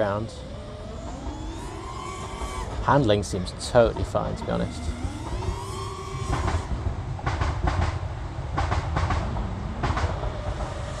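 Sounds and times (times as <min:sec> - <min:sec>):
quadcopter motors whining: 0:00.0 - 0:06.9
steady motor tone: 0:00.0 - 0:06.9
wind rumble on microphone: 0:00.0 - 0:11.0.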